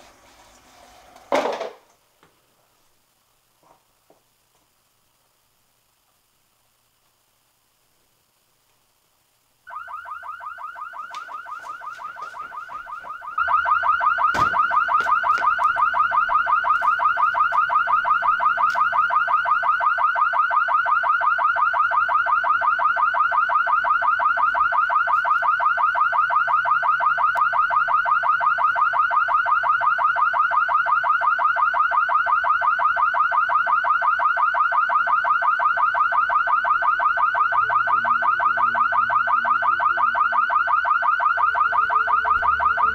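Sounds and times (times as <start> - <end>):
electronic alarm tone pulsing: 9.7 - 42.9.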